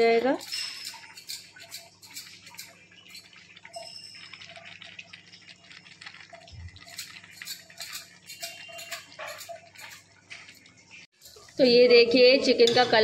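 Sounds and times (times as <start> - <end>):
food sizzling in oil: 6.5 - 13.0.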